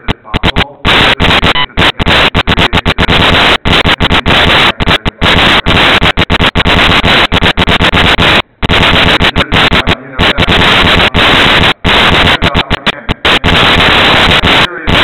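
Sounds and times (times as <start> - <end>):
harsh crackling distortion: 0.0 - 15.0.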